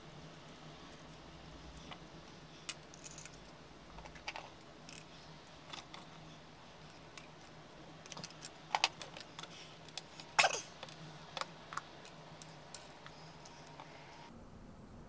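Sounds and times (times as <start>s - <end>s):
plastic parts clicking: 6.9s - 13.9s.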